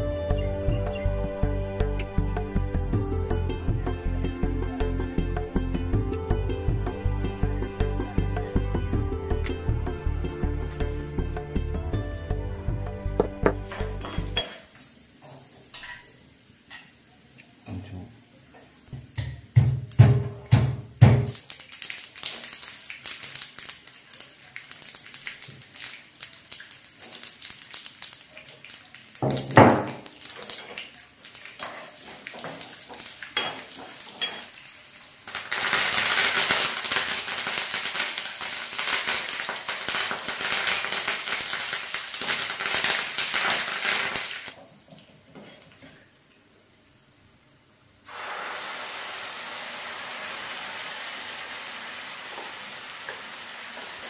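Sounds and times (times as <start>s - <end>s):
loud steady sizzle: 0.0s - 20.3s, 21.0s - 54.0s
spices frying in oil: 13.1s - 54.0s.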